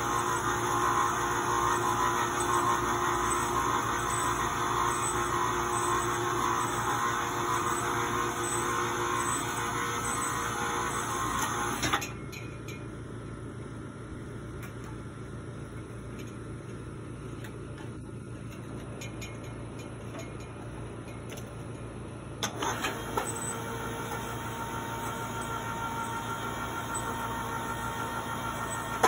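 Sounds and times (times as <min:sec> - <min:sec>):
electric winch motor running: 0:00.0 - 0:12.1, 0:22.4 - 0:29.0.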